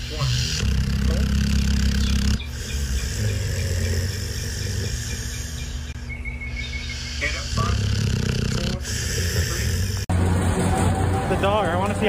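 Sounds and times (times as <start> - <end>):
dog snoring: 0.0 - 5.9, 6.8 - 10.1.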